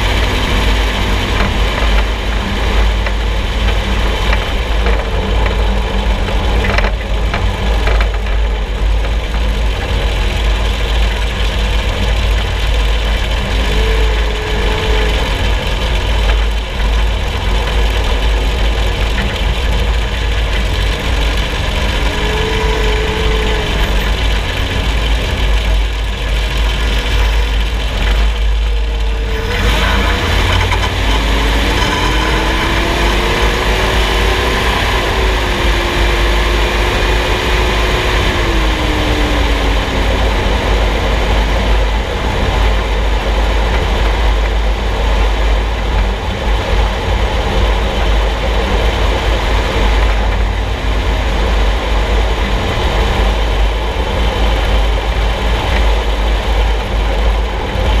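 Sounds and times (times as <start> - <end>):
vehicle underbody rumble: 0.0 - 58.0
rising and falling tone: 13.4 - 15.8, 21.2 - 25.6, 28.9 - 41.5.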